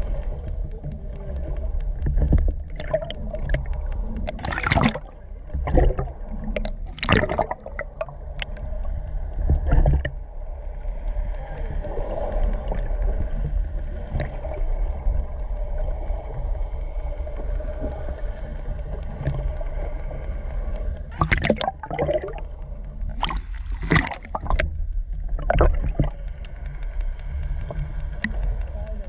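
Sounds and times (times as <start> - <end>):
bubbling gurgles: 0.0 - 13.4, 21.1 - 24.7, 25.3 - 26.3
low underwater rumble: 0.0 - 29.0.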